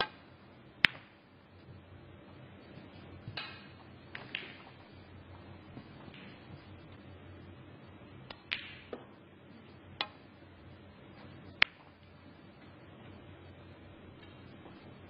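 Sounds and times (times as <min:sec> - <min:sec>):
snooker balls clicking: 0:00.0 - 0:01.8, 0:02.7 - 0:06.8, 0:08.2 - 0:09.2, 0:09.9 - 0:10.3, 0:11.1 - 0:12.8.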